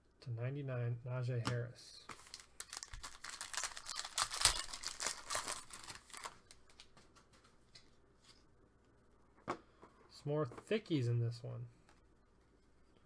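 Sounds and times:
foil wrapper tearing and crinkling: 0:02.2 - 0:06.6.

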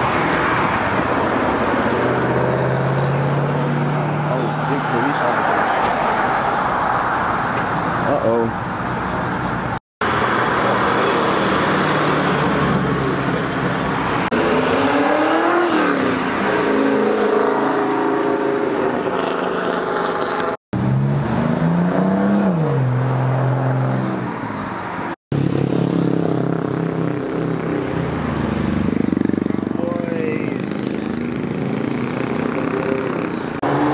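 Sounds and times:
cars accelerating past: 0:10.1 - 0:29.6, 0:30.6 - 0:33.9.

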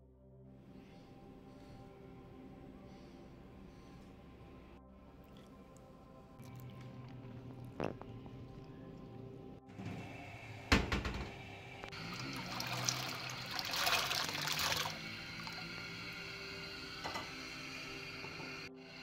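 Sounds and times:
beans splashing into water: 0:12.1 - 0:15.6.

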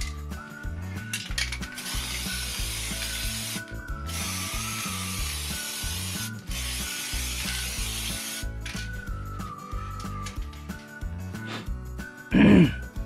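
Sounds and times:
aerosol spray can hissing: 0:01.8 - 0:08.5.

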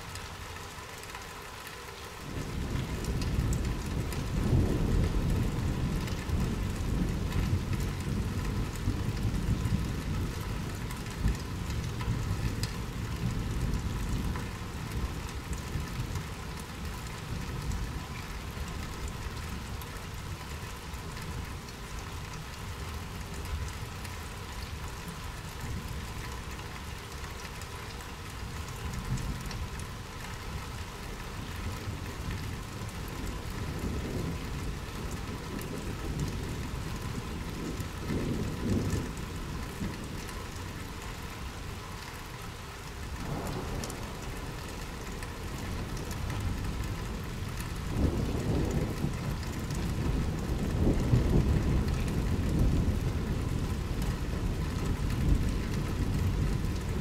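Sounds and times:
steady rain: 0:00.0 - 0:57.0
rolling thunder rumble: 0:02.3 - 0:19.9, 0:29.0 - 0:40.3, 0:43.0 - 0:57.0.

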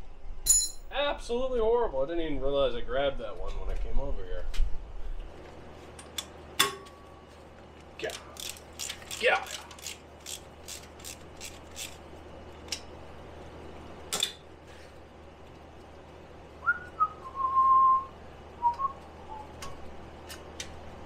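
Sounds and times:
ratchet clicks: 0:08.1 - 0:12.0
person whistling: 0:16.6 - 0:19.6.

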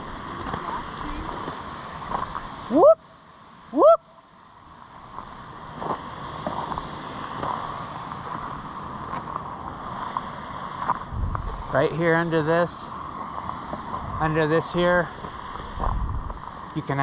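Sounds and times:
steady rushing noise: 0:00.0 - 0:17.0
person whooping: 0:02.7 - 0:03.1, 0:03.7 - 0:04.2.

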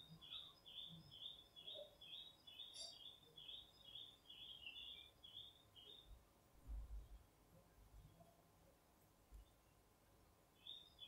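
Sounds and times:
bird chirping faintly: 0:00.0 - 0:09.9, 0:10.5 - 0:11.0.

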